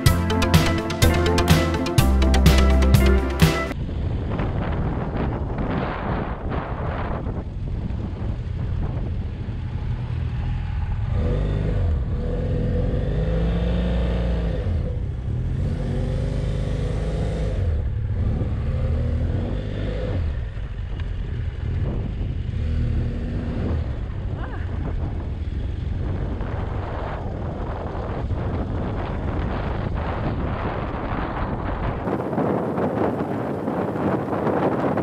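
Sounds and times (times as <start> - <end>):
motorcycle engine revving: 8.4 - 30.1.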